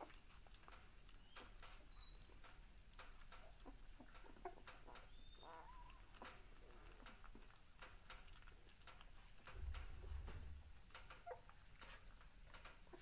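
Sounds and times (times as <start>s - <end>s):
puppies squeaking: 0.8s - 7.5s, 10.8s - 13.0s
low rumble: 9.5s - 10.9s.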